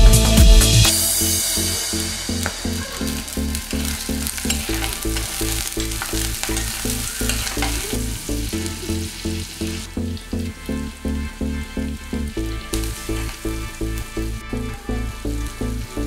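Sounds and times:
background music with low beat: 0.0s - 16.0s
vegetables sizzling in hot oil: 1.2s - 16.0s
steel spoon scraping pot: 1.6s - 9.9s.

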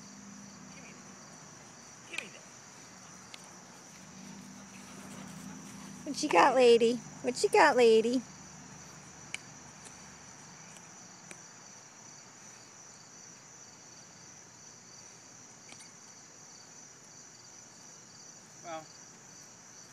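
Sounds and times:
insects chirring: 0.0s - 19.9s.

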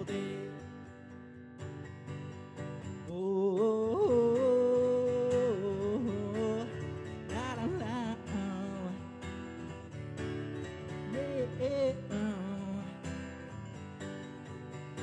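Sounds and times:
person singing wordlessly: 0.0s - 0.9s, 3.0s - 9.6s, 10.8s - 13.1s
acoustic guitar: 0.0s - 15.0s.

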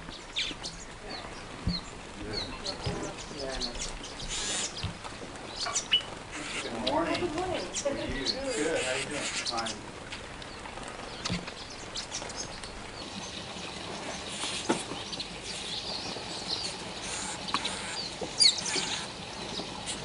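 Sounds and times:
birds chirping and twittering: 0.0s - 20.0s.

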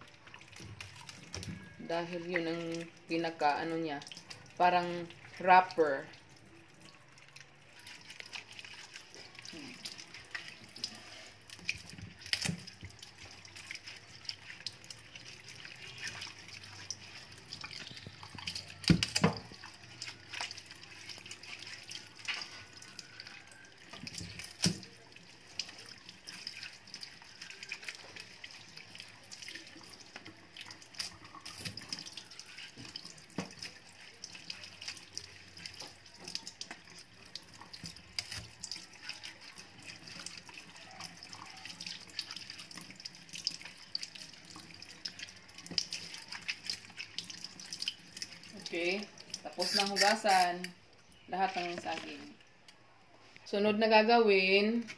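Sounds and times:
bananas rubbed in water: 7.6s - 50.6s
tap water running into sink: 9.1s - 50.7s.

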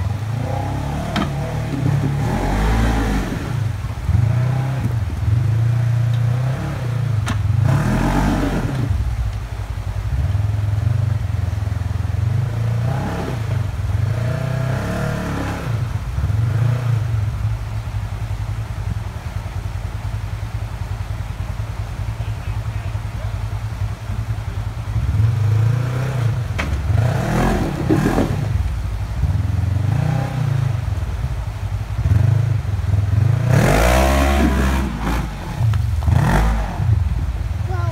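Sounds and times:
utility vehicle engine revving: 0.0s - 37.9s
tyres spinning and throwing water: 23.0s - 37.9s.

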